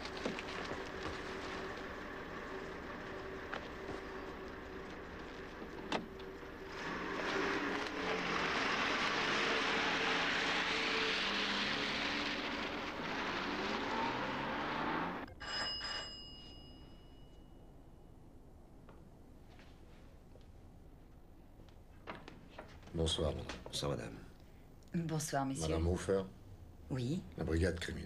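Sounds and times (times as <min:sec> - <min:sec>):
car driving by: 0:04.9 - 0:15.3
short high bell ring: 0:15.4 - 0:17.6.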